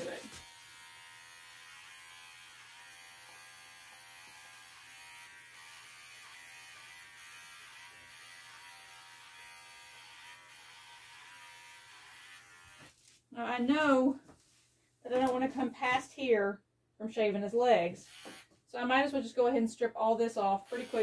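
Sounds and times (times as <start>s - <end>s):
pet clipper buzzing: 0.0s - 13.1s, 17.9s - 18.6s, 20.5s - 21.0s.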